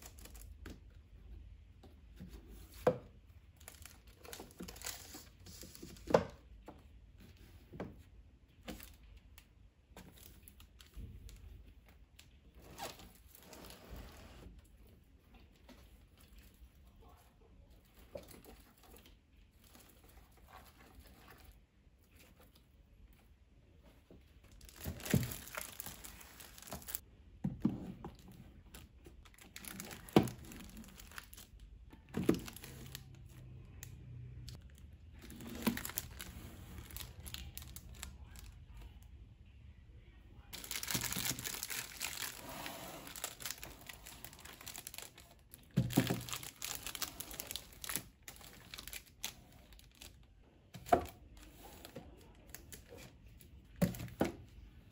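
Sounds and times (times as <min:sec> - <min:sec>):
plastic shrink-wrap crinkling: 0:03.5 - 0:06.0, 0:24.4 - 0:27.0, 0:28.2 - 0:33.9, 0:34.5 - 0:38.5, 0:40.5 - 0:50.4.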